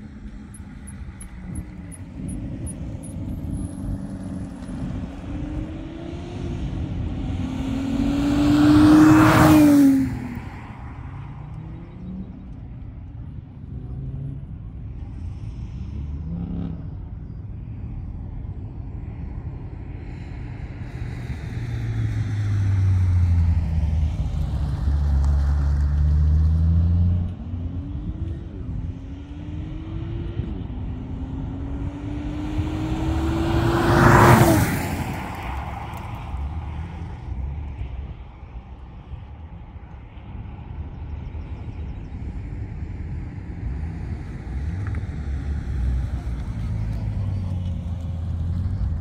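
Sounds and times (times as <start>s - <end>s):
car engine accelerating: 0.2s - 12.8s, 21.8s - 37.8s.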